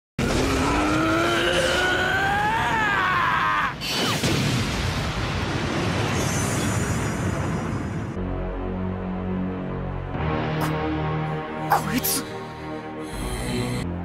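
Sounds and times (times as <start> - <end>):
character screaming: 0.3 - 4.2.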